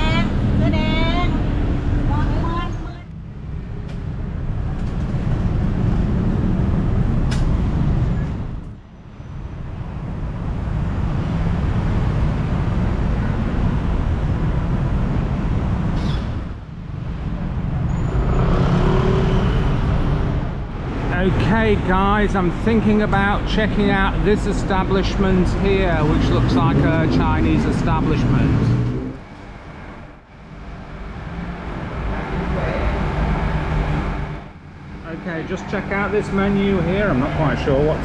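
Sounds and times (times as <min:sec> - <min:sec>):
motorbikes and cars passing: 0:00.0 - 0:38.0.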